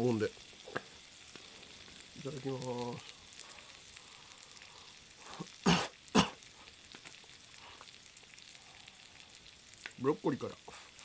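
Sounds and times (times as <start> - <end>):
food sizzling in a skillet: 0.0 - 11.0
puffs of breath: 3.0 - 5.6, 7.5 - 9.5, 10.7 - 11.0.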